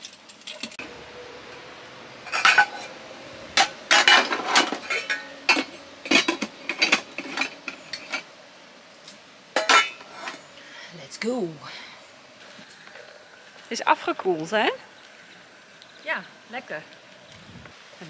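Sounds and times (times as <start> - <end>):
dishes clattering and clinking: 3.6 - 8.3, 9.6 - 10.4.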